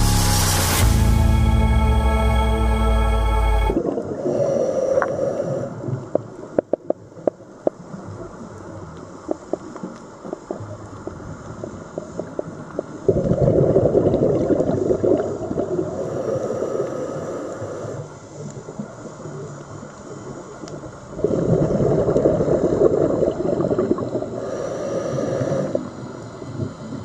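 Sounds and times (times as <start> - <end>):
underwater gurgling: 3.8 - 27.0
diver exhaling bubbles: 13.0 - 18.0, 21.1 - 27.0.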